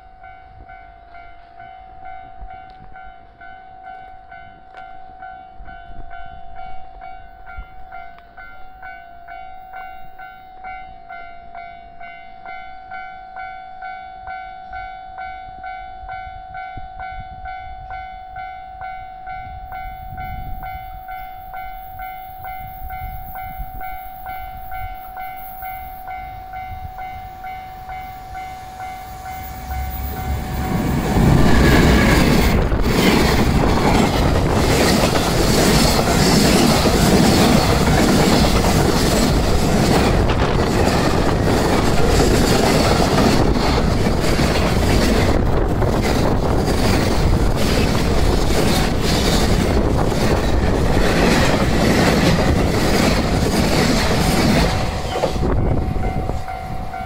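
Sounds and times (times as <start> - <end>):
level crossing warning bell: 0.0 - 43.9, 54.8 - 57.0
freight train wheels on rails: 0.0 - 57.0.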